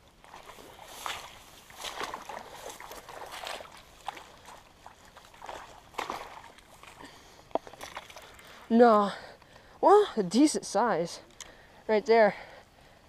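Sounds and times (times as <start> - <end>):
splashing in shallow water: 0.0 - 8.7.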